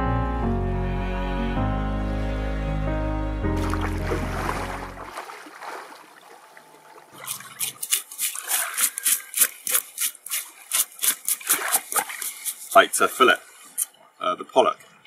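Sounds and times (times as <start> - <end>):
music: 0.0 - 5.1
faint water sounds: 3.6 - 15.0
knife scraping fish scales: 7.2 - 13.9.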